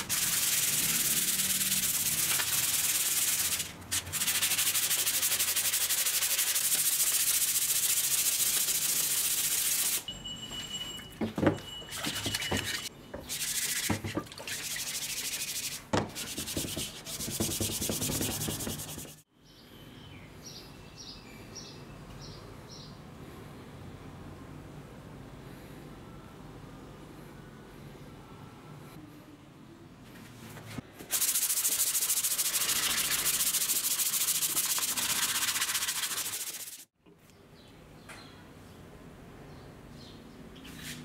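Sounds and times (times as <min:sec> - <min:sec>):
sandpaper rasping on wood: 0:00.0 - 0:10.0, 0:14.6 - 0:19.2, 0:31.1 - 0:36.9.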